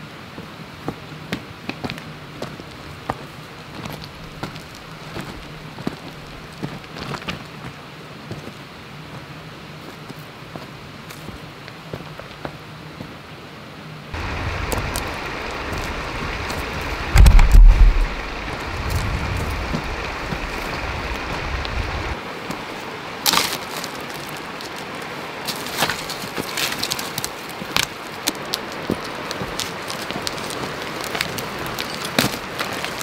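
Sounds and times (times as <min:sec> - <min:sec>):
footsteps on stones and branches: 0:00.3 - 0:13.2, 0:14.2 - 0:33.0
wind buffeting microphone: 0:14.2 - 0:22.2.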